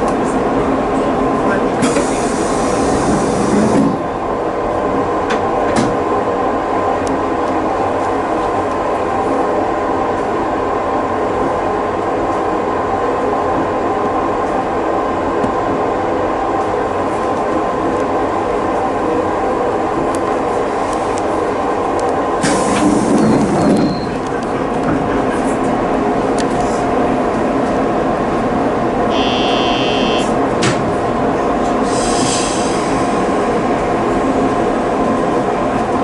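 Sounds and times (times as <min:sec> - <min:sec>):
electric train equipment hum: 0:24.1 - 0:36.0.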